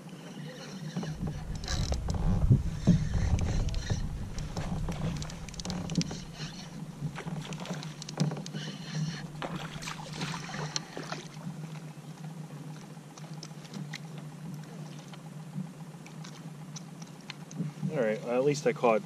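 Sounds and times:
fishing reel whirring: 0:00.0 - 0:11.1
steady low hum: 0:00.0 - 0:18.0
small clicks: 0:01.2 - 0:08.6.

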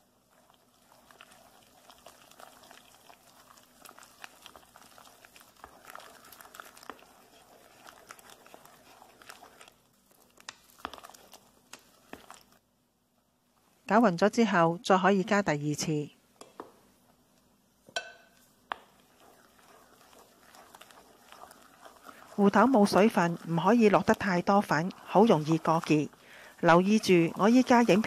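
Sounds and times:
spatula scraping a metal pot: 0:03.9 - 0:09.8, 0:18.9 - 0:28.0.

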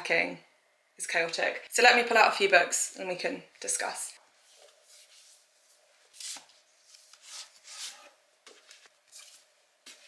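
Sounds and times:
books scraping against shelf: 0:06.1 - 0:09.4.

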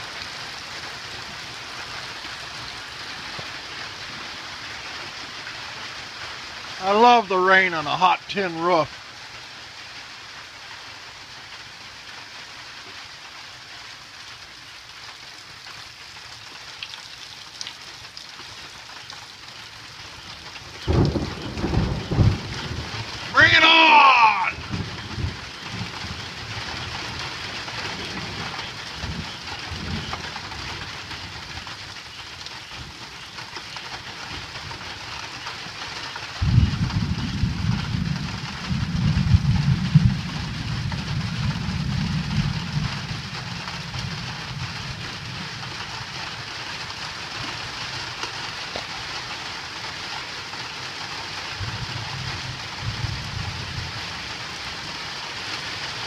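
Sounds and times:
rain on a tin roof: 0:00.0 - 0:56.0
thunder rumbling: 0:20.7 - 0:31.8, 0:36.4 - 0:46.2, 0:51.6 - 0:54.4.

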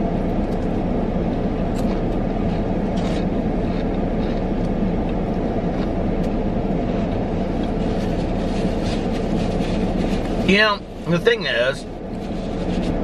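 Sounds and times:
car engine rumble inside cabin: 0:00.0 - 0:13.0
crunchy chewing: 0:00.2 - 0:10.5.

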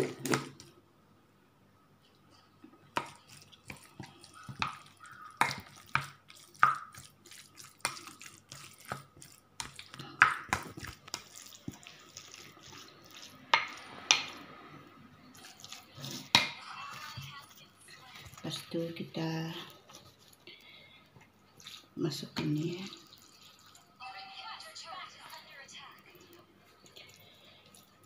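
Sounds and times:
spatula stirring wet filling: 0:02.3 - 0:14.5, 0:15.2 - 0:20.9, 0:21.5 - 0:24.0.

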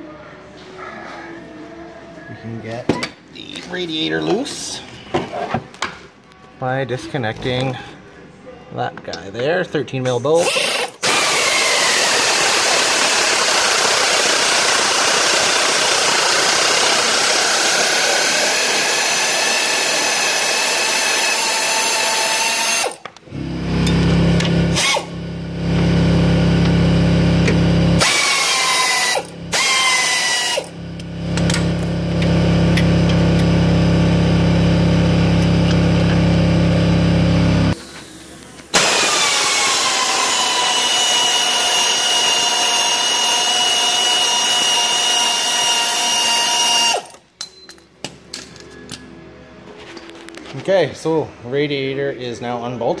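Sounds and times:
power drill whining: 0:10.4 - 0:37.8, 0:38.8 - 0:47.2.

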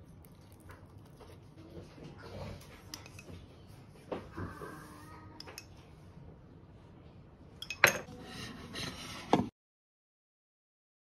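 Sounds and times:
spoon clinking on ceramic and glass: 0:02.9 - 0:03.3, 0:07.6 - 0:08.1.

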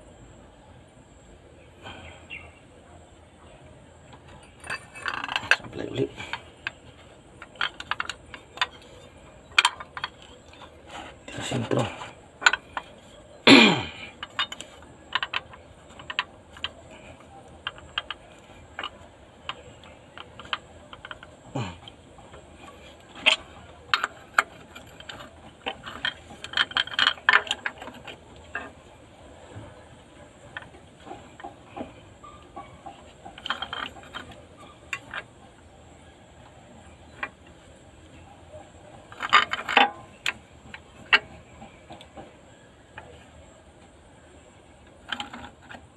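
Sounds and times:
sharp metallic clicks and clanks: 0:04.1 - 0:28.8, 0:39.1 - 0:42.3.

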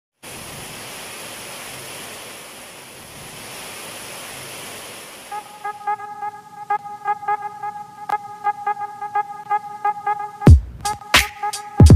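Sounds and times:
heavy rain pouring: 0:00.2 - 0:05.7
music with a steady beat: 0:05.6 - 0:11.9.

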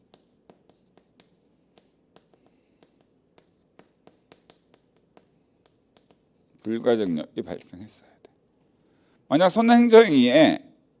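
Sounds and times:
chalk tapping and scratching: 0:00.0 - 0:08.4.

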